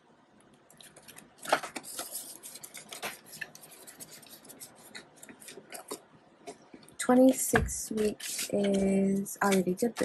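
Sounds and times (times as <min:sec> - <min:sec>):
paper banknotes rustling: 0:00.9 - 0:06.0.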